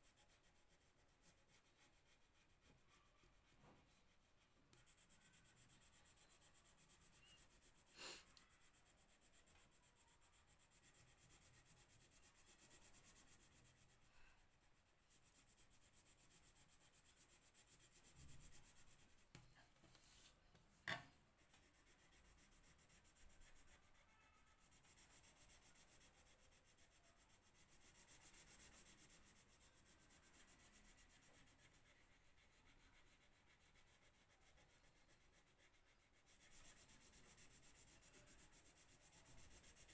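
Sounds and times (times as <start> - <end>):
colour pencil scratching on paper: 0.0 - 39.9.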